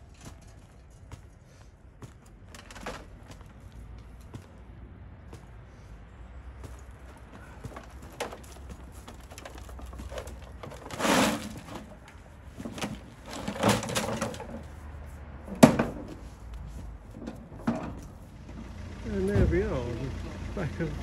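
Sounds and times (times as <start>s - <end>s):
spade scraping soil and gravel: 7.4s - 14.8s.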